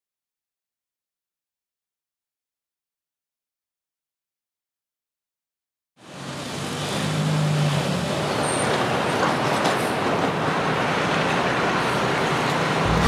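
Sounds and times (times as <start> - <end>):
city street traffic: 6.0 - 13.0.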